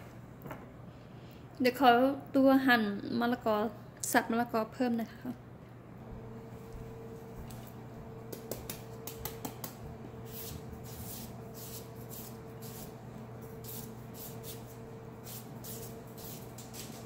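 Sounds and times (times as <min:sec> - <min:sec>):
knife chopping papaya: 0:08.3 - 0:09.8
knife shaving strokes: 0:08.3 - 0:17.0.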